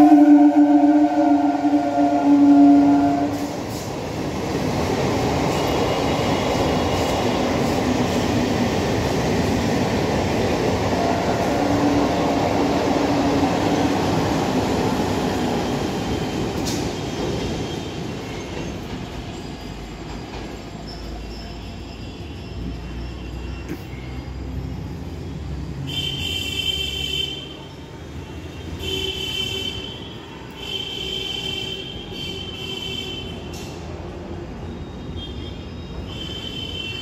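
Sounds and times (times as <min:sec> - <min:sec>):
train horn: 0:00.0 - 0:03.6, 0:28.7 - 0:33.8, 0:35.2 - 0:37.0
train wheels rumbling on rails: 0:00.0 - 0:26.2, 0:33.2 - 0:37.0
faint wheel squeal: 0:19.3 - 0:25.5.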